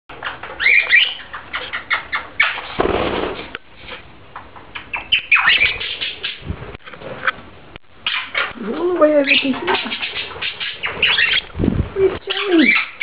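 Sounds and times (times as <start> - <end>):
budgerigars chirping and warbling: 0.1 - 2.8, 4.8 - 6.5, 8.0 - 11.5, 12.1 - 13.0.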